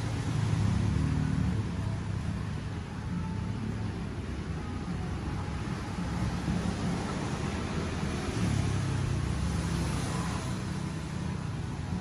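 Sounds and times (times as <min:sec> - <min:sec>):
road traffic rumble: 0:00.0 - 0:12.0
vehicle passing: 0:05.8 - 0:12.0.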